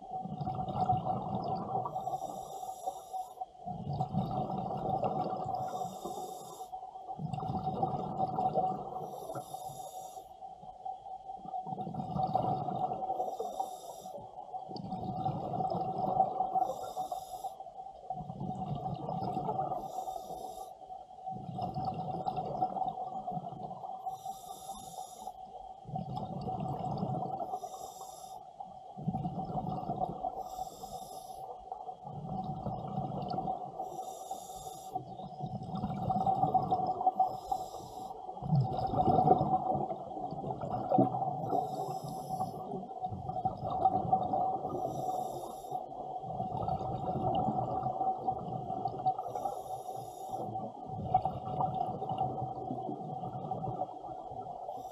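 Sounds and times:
exhaled bubbles rumbling: 0.0s - 2.1s, 3.7s - 6.1s, 7.2s - 9.3s, 11.5s - 13.2s, 14.7s - 16.6s, 18.1s - 19.8s, 21.3s - 24.0s, 25.8s - 27.5s, 29.0s - 30.4s, 31.9s - 33.8s, 35.0s - 37.4s, 38.3s - 45.1s, 46.0s - 49.6s, 50.3s - 54.6s
regulator inhalation hiss: 1.9s - 3.4s, 5.6s - 6.8s, 9.0s - 10.4s, 13.1s - 14.2s, 16.6s - 17.6s, 19.7s - 20.8s, 24.0s - 25.4s, 27.4s - 28.5s, 30.4s - 31.5s, 33.8s - 35.1s, 37.2s - 38.2s, 41.4s - 42.8s, 44.8s - 46.0s, 49.2s - 50.5s.

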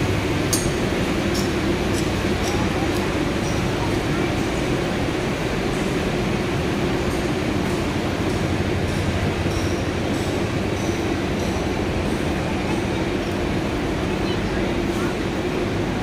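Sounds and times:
train running rumble: 0.0s - 16.0s.

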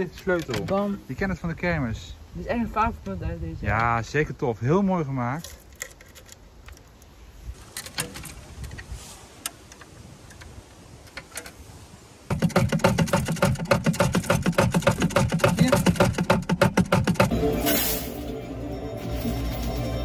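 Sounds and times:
coins clinking: 17.3s - 20.0s.

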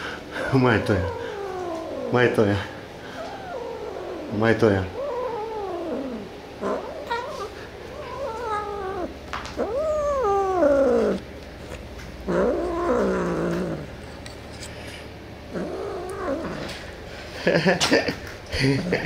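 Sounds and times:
cat yowling: 0.4s - 11.2s, 12.3s - 14.0s, 15.5s - 16.8s.

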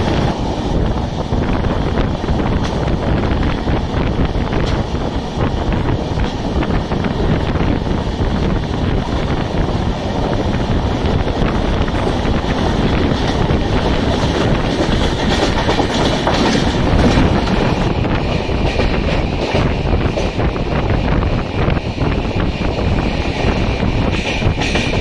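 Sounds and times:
train wheel and rail rush: 0.0s - 25.0s
wind on microphone: 0.0s - 25.0s
wheels clicking over rail joints: 10.9s - 20.5s.

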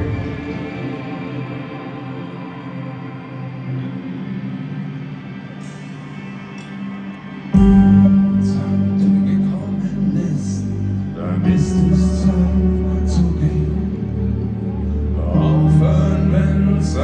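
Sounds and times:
heavy low bass: 7.6s - 17.0s.

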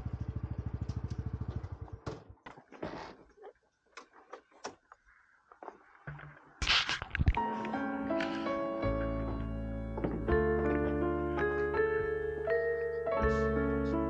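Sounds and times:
motorcycle engine idling: 0.0s - 2.4s.

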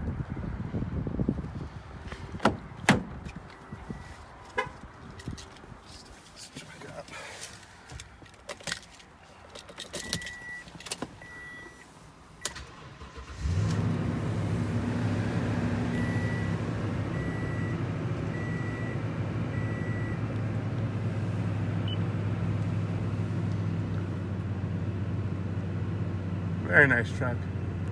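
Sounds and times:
keys rattling: 7.9s - 11.0s
car engine starting and idling: 9.6s - 27.9s
dashboard warning chime beeping: 10.2s - 11.9s, 16.0s - 16.6s, 17.2s - 19.0s, 19.6s - 20.2s.

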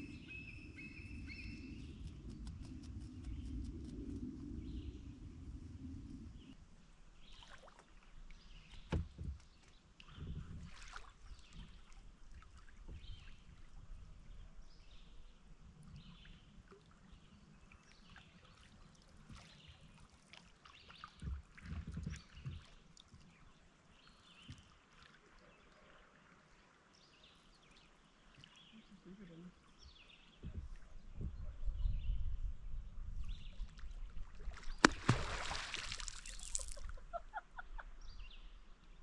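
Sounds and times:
distant bird chirps: 0.0s - 2.2s
water lapping and trickling: 7.0s - 31.4s, 33.3s - 39.0s.

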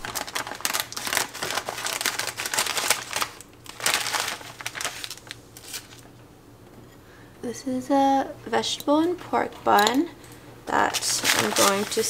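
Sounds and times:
plastic packaging crinkling: 0.0s - 6.1s, 10.8s - 12.0s.

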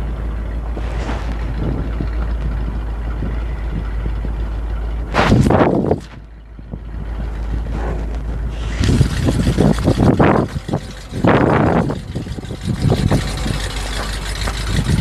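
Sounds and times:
truck engine driving past: 0.0s - 15.0s
loud rushing burst: 0.8s - 2.0s.

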